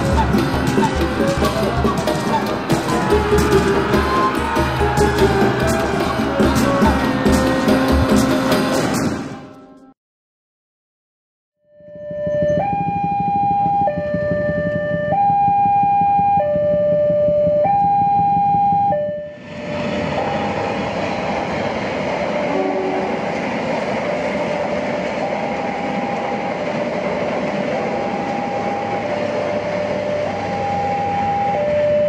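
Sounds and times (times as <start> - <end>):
level crossing alarm: 0.0 - 8.3, 11.7 - 19.4, 27.8 - 32.0
passenger train passing: 0.0 - 10.0, 12.2 - 32.0.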